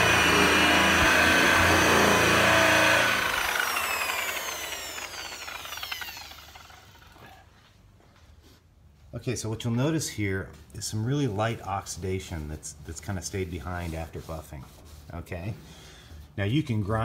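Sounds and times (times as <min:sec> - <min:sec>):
electric buffer whine spinning down: 0:00.0 - 0:07.4.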